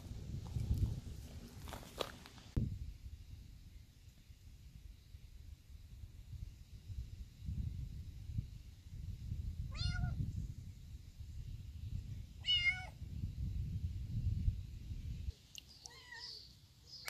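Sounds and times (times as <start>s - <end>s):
kitten meowing: 9.7s - 10.2s, 12.4s - 12.9s, 15.8s - 16.4s.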